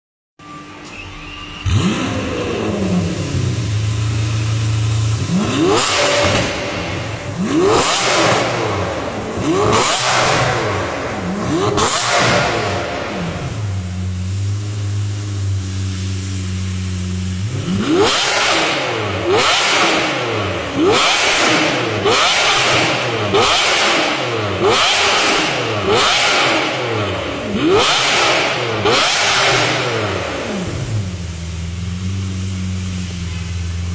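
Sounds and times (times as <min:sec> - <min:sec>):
car engine idling and revving: 0:00.4 - 0:33.9.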